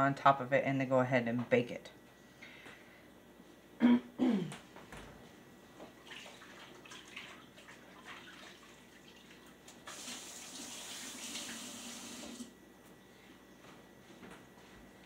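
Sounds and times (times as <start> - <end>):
kitchen tap running: 6.0 - 12.5.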